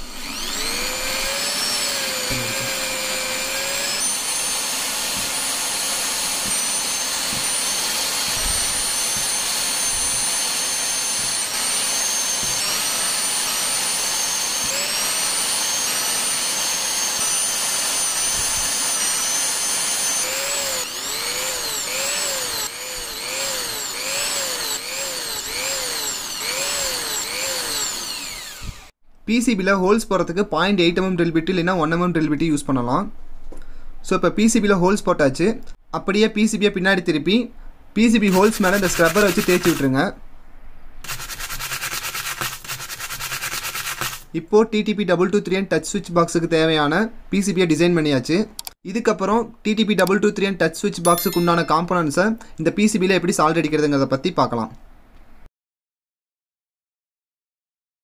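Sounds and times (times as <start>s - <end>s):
small electric drill whine: 0.0s - 29.0s, 38.3s - 39.9s, 51.1s - 51.7s.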